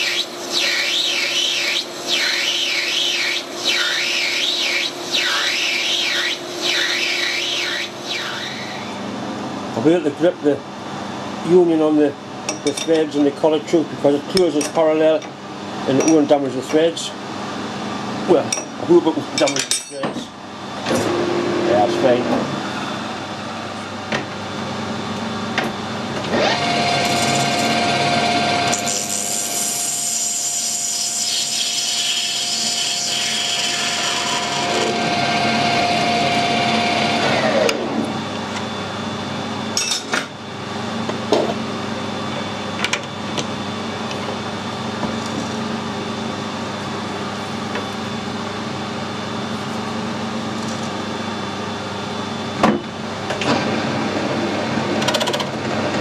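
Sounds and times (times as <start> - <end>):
spindle whine: 0.0 - 9.1
lathe motor hum: 26.2 - 38.6.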